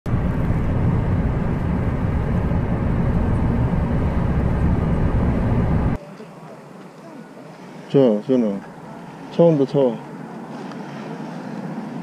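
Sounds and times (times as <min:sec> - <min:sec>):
wind buffeting microphone: 0:00.1 - 0:06.0.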